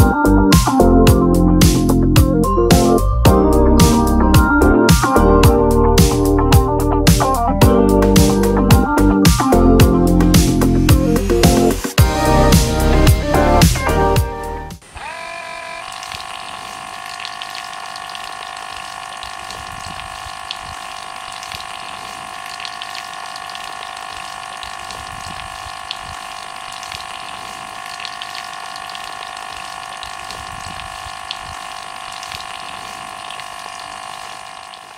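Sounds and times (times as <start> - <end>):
small pump motor whining: 0.0 - 34.9
water splashing: 14.8 - 34.9.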